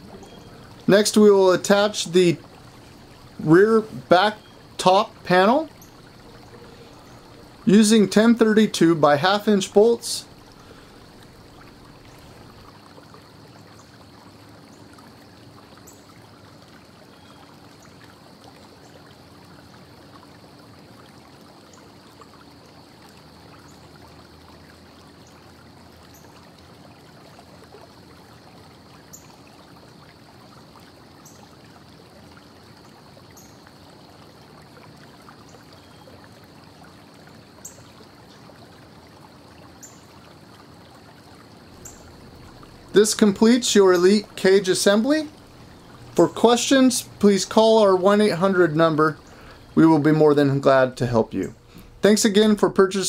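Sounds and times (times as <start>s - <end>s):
steady background hiss: 0.0s - 27.2s, 28.0s - 53.0s.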